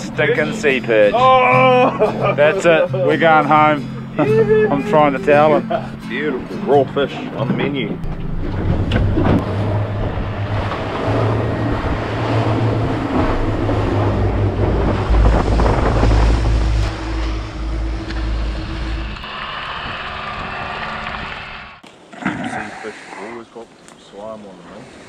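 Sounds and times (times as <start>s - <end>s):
water rushing past hull: 3.2s - 25.0s
outboard motor boat running: 4.8s - 21.8s
wind buffeting microphone: 7.2s - 21.7s.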